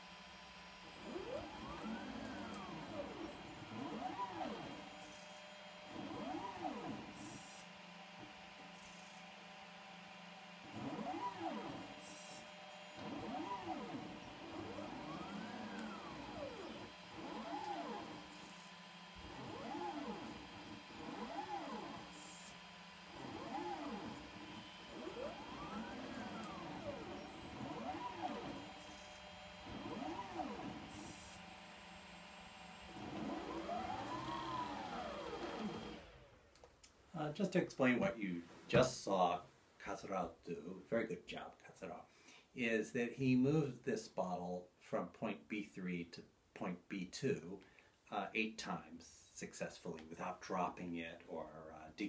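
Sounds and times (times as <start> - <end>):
robotic arm motors whining: 0.0 - 36.3
steady electrical hum: 0.0 - 41.3.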